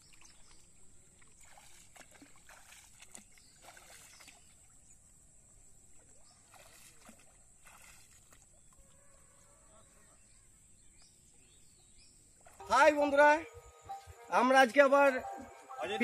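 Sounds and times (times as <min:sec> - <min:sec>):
legs wading through water: 0:00.0 - 0:09.5.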